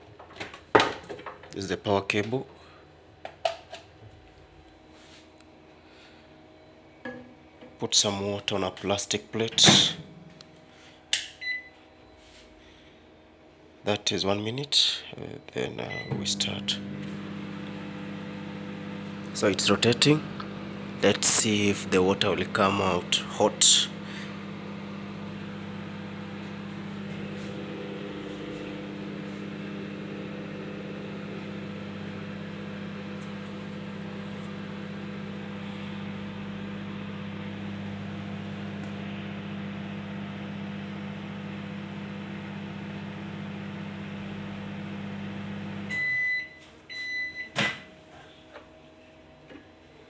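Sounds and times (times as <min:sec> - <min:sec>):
microwave beeps: 0:11.4 - 0:11.8, 0:15.8 - 0:18.2, 0:43.4 - 0:47.8
microwave oven humming: 0:15.7 - 0:48.4.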